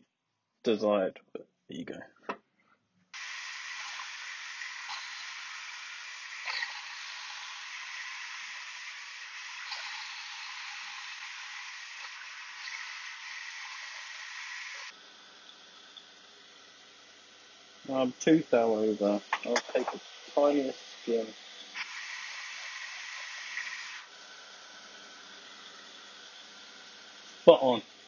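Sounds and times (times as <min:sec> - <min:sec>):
lathe tool cutting steel: 0:03.2 - 0:15.0, 0:18.0 - 0:28.0
faint ticks: 0:03.8 - 0:08.1, 0:09.6 - 0:12.8.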